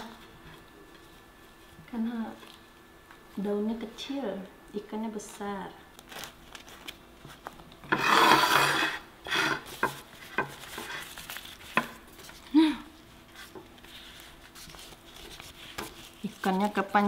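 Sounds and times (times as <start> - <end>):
banana leaves rustling: 6.0 - 7.5, 10.1 - 17.0.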